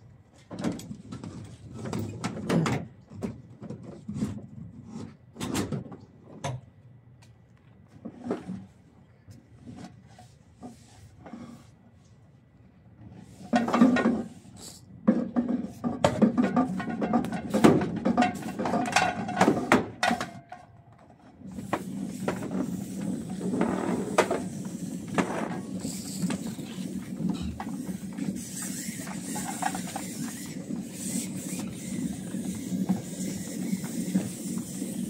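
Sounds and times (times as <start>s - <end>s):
hose reel knocking and clattering: 13.4s - 20.7s, 21.4s - 35.0s
hose dragging: 21.5s - 35.0s
low hum of reel: 21.5s - 35.0s.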